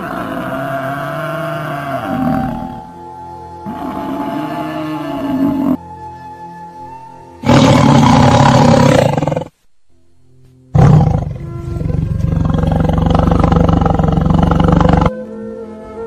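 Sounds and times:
big cat roaring: 0:00.0 - 0:02.9, 0:03.7 - 0:05.8, 0:07.4 - 0:09.5, 0:10.8 - 0:15.1
soft background music: 0:00.0 - 0:16.0.

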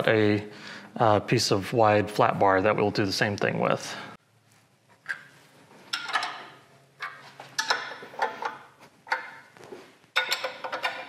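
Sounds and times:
metal clamps clinking and knocking: 0:05.9 - 0:11.0.

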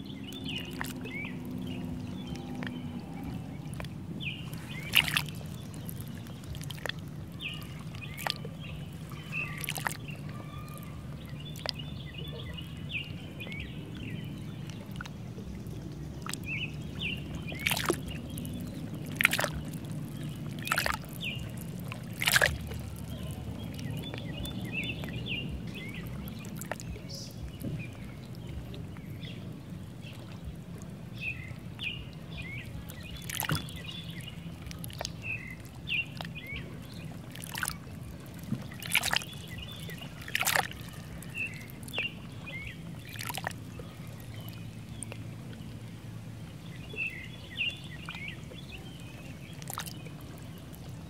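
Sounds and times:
low rush of water: 0:00.0 - 0:51.0
small birds chirping: 0:00.0 - 0:51.0
water splashes and drips: 0:00.0 - 0:51.0.

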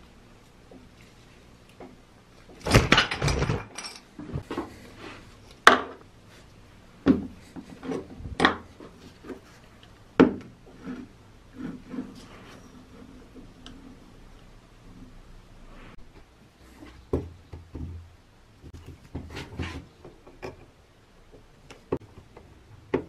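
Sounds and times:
drill parts clattering on workbench: 0:02.6 - 0:04.1.

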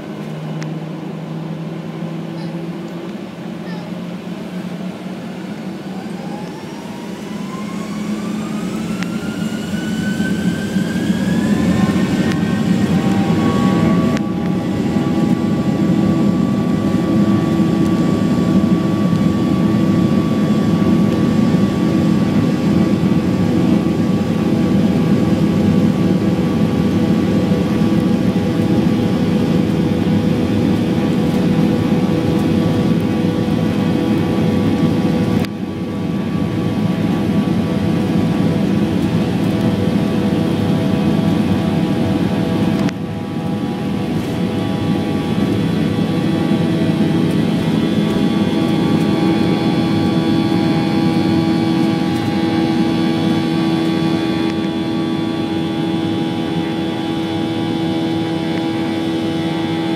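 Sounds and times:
jet engine whine: 0:00.0 - 0:59.9
loud even engine rumble: 0:00.0 - 0:59.9.

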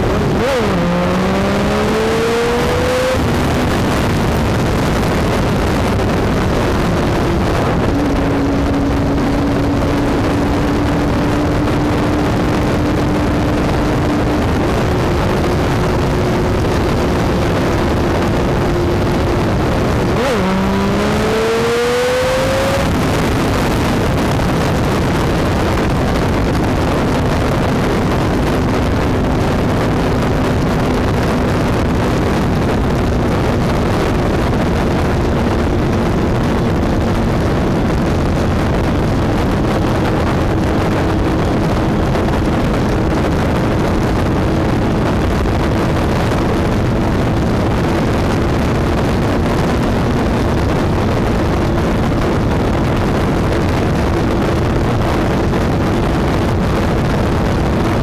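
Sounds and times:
motorcycle engine drone: 0:00.0 - 0:58.0
wind rush over microphone: 0:00.0 - 0:58.0.

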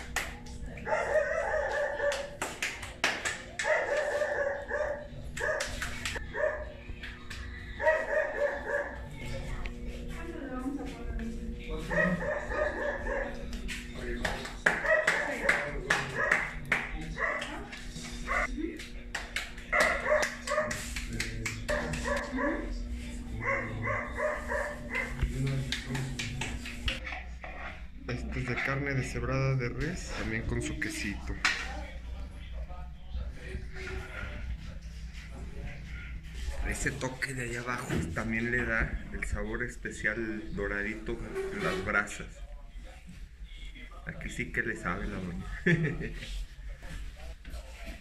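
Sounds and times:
dog barking: 0:00.8 - 0:02.4, 0:03.6 - 0:06.8, 0:07.8 - 0:09.1, 0:11.9 - 0:13.4, 0:14.7 - 0:16.6, 0:17.2 - 0:17.6, 0:18.2 - 0:18.5, 0:19.7 - 0:20.9, 0:21.6 - 0:22.8, 0:23.4 - 0:25.2
dog barking and yelping: 0:00.9 - 0:02.4, 0:03.6 - 0:06.7, 0:07.8 - 0:09.0
hands patting dough: 0:18.8 - 0:22.3, 0:25.0 - 0:27.0.

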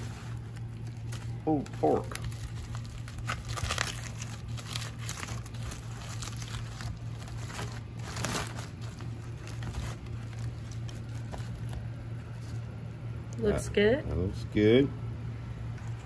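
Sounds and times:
foil crinkling: 0:00.0 - 0:12.7
steady low hum: 0:00.0 - 0:16.0.

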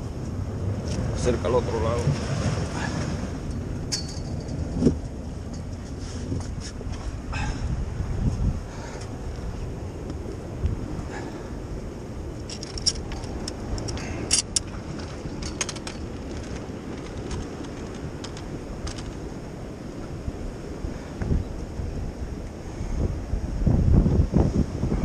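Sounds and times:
wind rumbling on microphone: 0:00.0 - 0:25.0
light clicks and jingles: 0:12.4 - 0:19.2.

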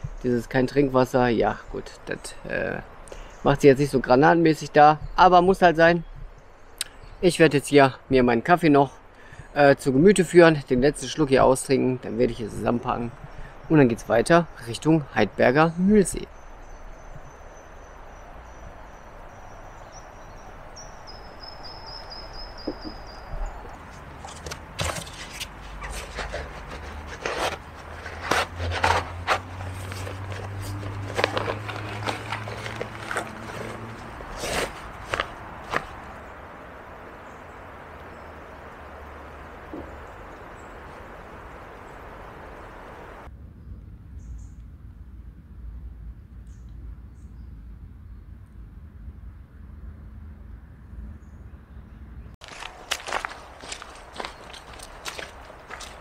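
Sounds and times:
running water: 0:22.7 - 0:43.3.

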